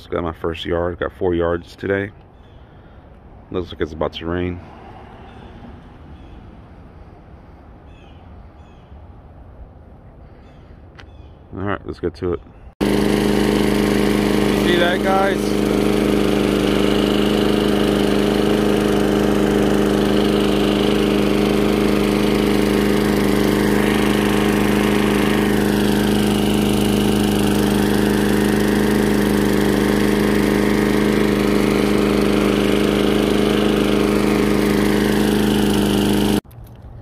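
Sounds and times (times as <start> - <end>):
lawnmower engine running: 12.8 - 36.5.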